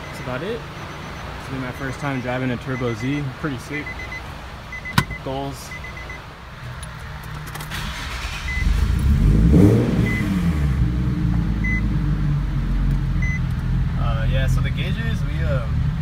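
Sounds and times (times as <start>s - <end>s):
short beeps: 3.8s - 6.2s, 10.0s - 10.3s, 11.6s - 11.9s, 13.2s - 13.4s
car engine revving and idling: 5.8s - 16.0s.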